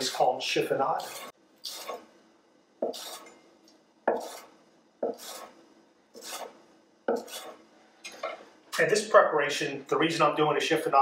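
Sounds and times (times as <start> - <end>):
knife chopping on wooden board: 4.1 - 5.5.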